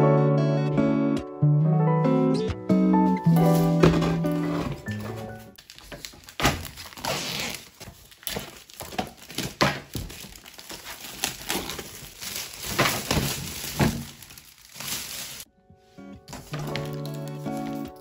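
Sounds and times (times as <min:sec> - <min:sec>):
plastic crinkling: 0:04.7 - 0:15.5, 0:16.3 - 0:18.0.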